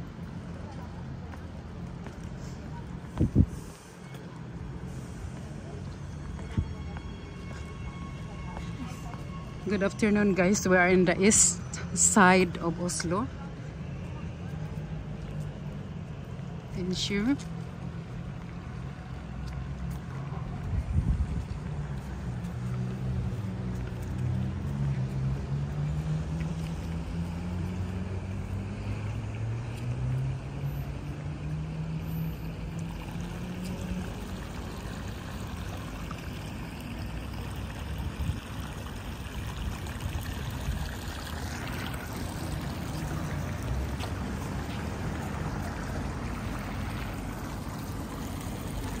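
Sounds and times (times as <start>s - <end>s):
steady traffic noise: 0.0s - 49.0s
passing vehicle engine drone: 21.7s - 37.6s, 39.5s - 49.0s.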